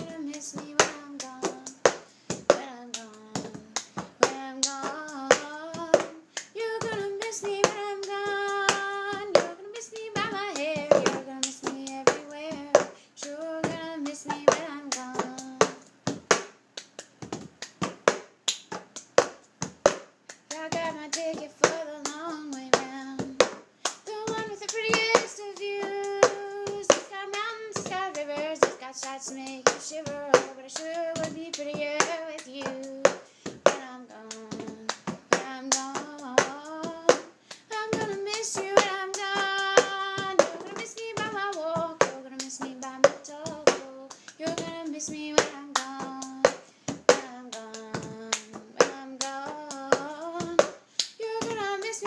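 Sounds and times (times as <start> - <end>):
woman singing wordless notes: 0.0 - 15.9, 20.5 - 23.4, 24.0 - 52.0
hand claps: 0.0 - 52.0.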